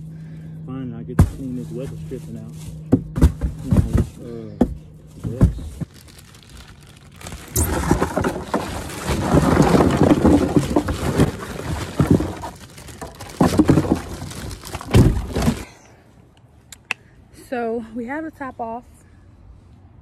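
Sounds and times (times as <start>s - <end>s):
plastic bag crinkling: 5.2s - 15.7s
ice cubes clattering: 5.9s - 15.7s
heavy thumps: 7.2s - 15.7s.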